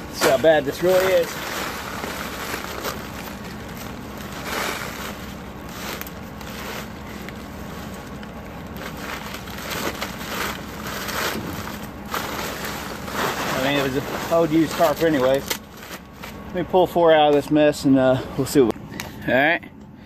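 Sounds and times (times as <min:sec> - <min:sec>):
tarp rustling and crinkling: 0:00.0 - 0:17.4.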